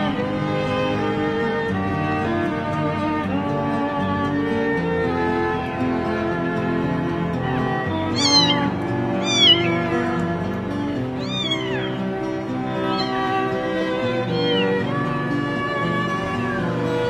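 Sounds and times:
background music: 0.0s - 17.0s
kitten mewing: 8.1s - 10.2s, 11.2s - 12.0s, 12.7s - 13.5s, 14.1s - 14.9s.

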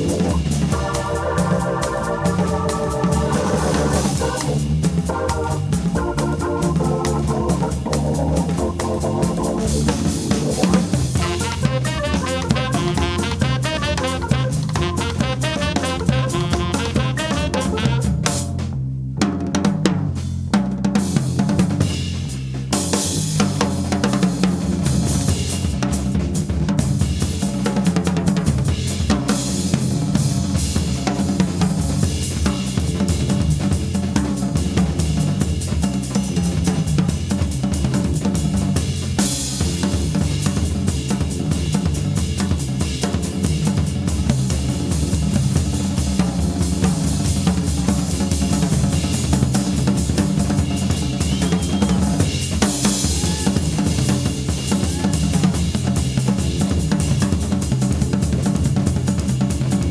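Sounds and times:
low organ notes held: 0.0s - 18.0s
snare drum playing: 0.0s - 18.4s
drum kit playing: 0.0s - 59.9s.

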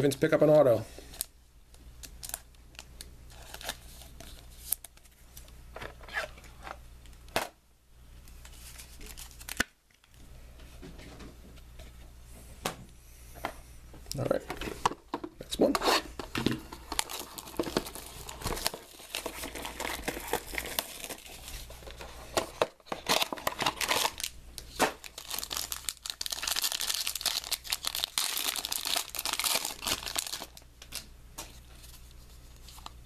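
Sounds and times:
foil wrapper crinkling and tearing: 2.1s - 5.0s, 8.5s - 9.7s, 16.8s - 22.1s, 22.8s - 31.0s.

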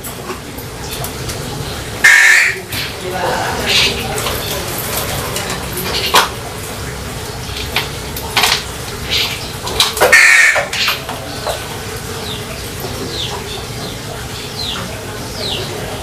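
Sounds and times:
caged birds calling: 0.0s - 16.0s
loud harsh bird call: 2.0s - 3.0s, 10.0s - 11.0s.

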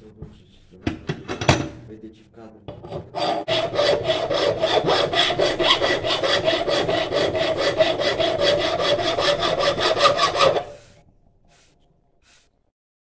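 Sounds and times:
file rasping on steel blade: 2.7s - 12.5s.

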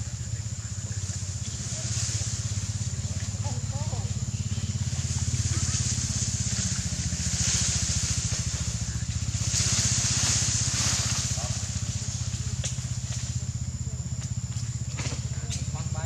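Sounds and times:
engine idling: 0.0s - 16.0s
hiss: 4.2s - 13.2s.

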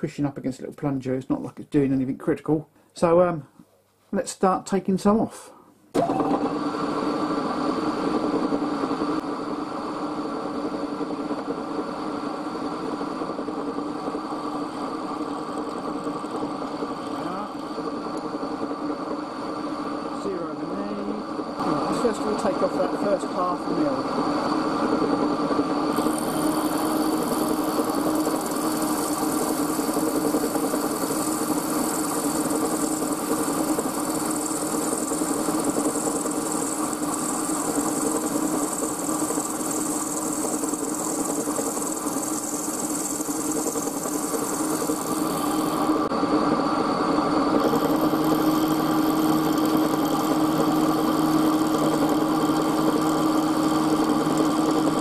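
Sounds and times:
high hissing cutting noise: 11.9s - 25.2s, 25.8s - 46.2s, 47.0s - 55.0s
milling machine running: 11.9s - 55.0s.

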